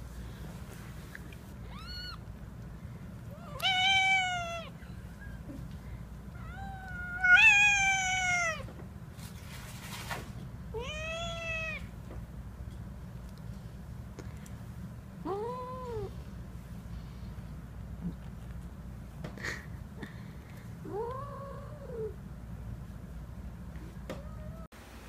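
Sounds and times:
cat meowing: 0:01.7 - 0:02.2, 0:03.3 - 0:04.8, 0:06.4 - 0:08.7, 0:10.8 - 0:11.9.

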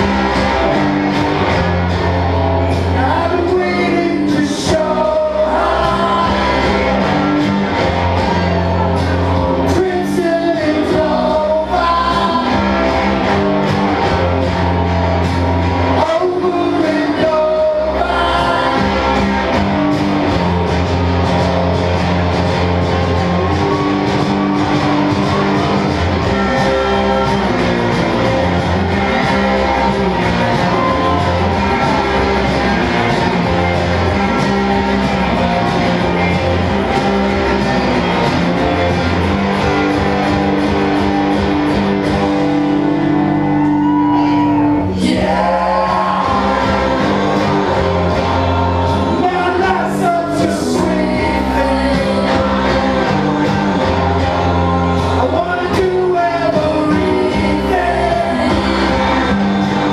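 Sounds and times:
rock band with electric guitars: 0:00.0 - 0:59.9
man singing: 0:02.9 - 0:06.9, 0:09.6 - 0:12.7, 0:15.9 - 0:19.1, 0:44.9 - 0:47.4, 0:48.9 - 0:59.4.

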